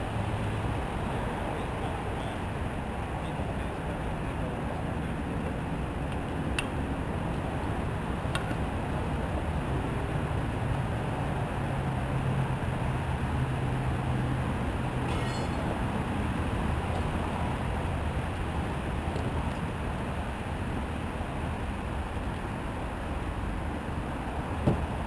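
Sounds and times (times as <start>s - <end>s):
traffic rumble: 0.0s - 25.0s.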